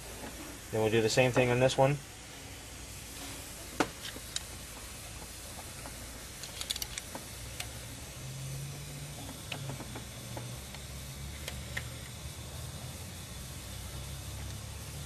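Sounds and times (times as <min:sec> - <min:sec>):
steady low hum: 0:00.0 - 0:15.0
metallic clicks of wrench: 0:06.4 - 0:07.1.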